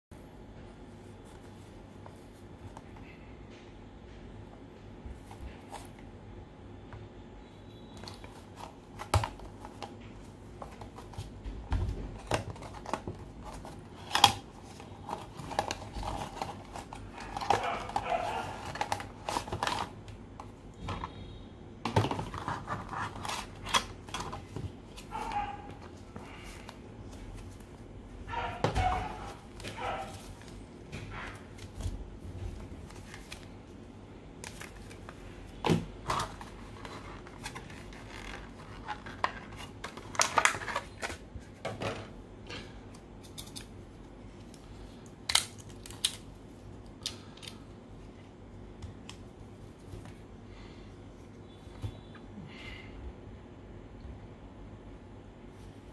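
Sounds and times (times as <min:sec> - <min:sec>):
cardboard and plastic rustling: 0:08.0 - 0:21.2, 0:21.8 - 0:33.8, 0:34.4 - 0:42.1.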